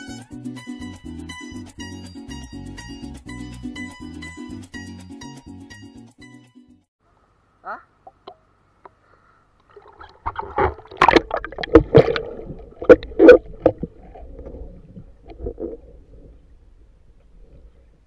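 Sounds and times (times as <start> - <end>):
water splashing and gurgling: 9.6 - 16.8.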